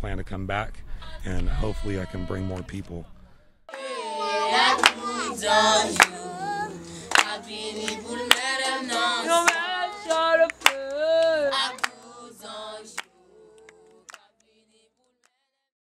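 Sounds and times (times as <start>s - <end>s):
group of people singing: 1.0s - 3.0s, 3.7s - 15.2s
hand claps: 4.8s - 5.1s, 6.0s - 6.2s, 7.1s - 12.0s.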